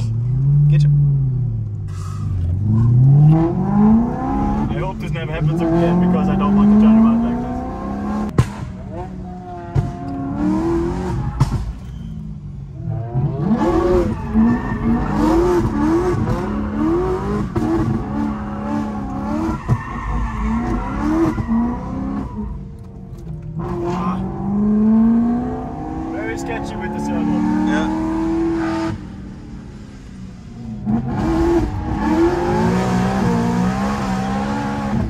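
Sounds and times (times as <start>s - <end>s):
car engine revving: 0.0s - 35.0s.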